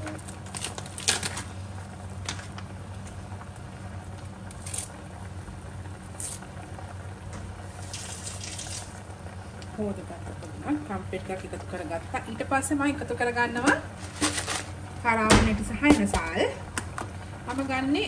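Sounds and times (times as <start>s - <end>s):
gas burner low hum: 0.0s - 18.0s
curry simmering in a pot: 1.3s - 15.2s.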